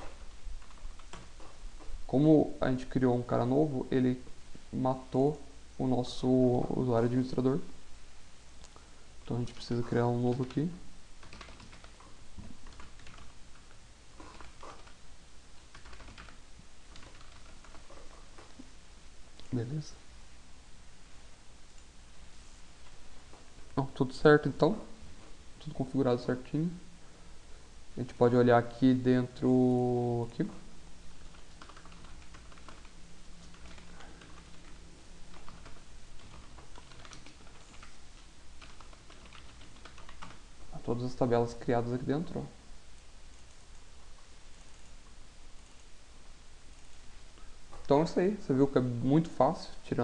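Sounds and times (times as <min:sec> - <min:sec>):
faint low hum: 0:00.0 - 0:50.0
typing on a keyboard: 0:00.6 - 0:01.3, 0:11.2 - 0:15.0, 0:15.7 - 0:18.2, 0:31.3 - 0:38.0, 0:38.6 - 0:40.4.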